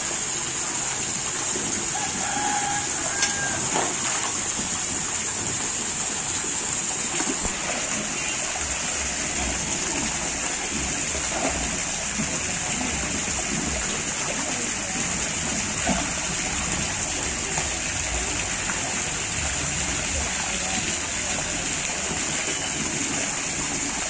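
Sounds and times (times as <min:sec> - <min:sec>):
water rushing in fish tank: 0:00.0 - 0:24.0
splashing from legs wading: 0:01.9 - 0:06.3.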